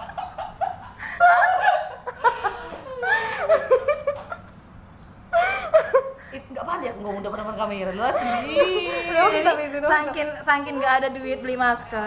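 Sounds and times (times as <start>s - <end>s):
woman laughing: 0.0s - 4.4s, 5.3s - 6.4s, 7.3s - 10.8s.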